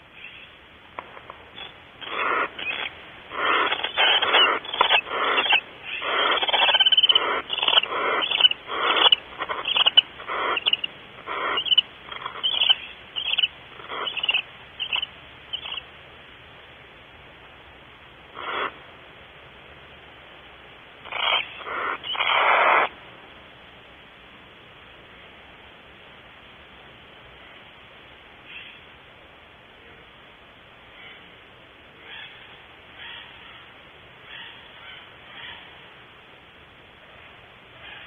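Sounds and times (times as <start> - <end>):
barn owl hissing: 1.6 - 15.9, 18.3 - 18.9, 21.0 - 22.9.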